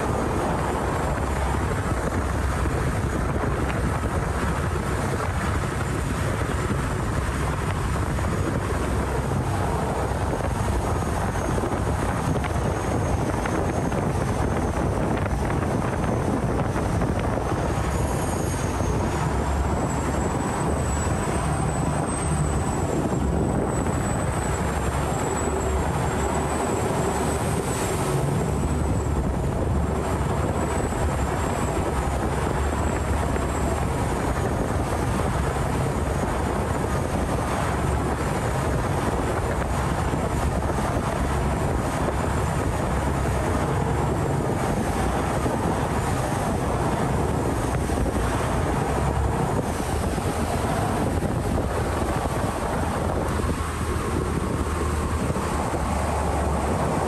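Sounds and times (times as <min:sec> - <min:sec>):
boat diesel engine rumbling: 0:00.0 - 0:57.0.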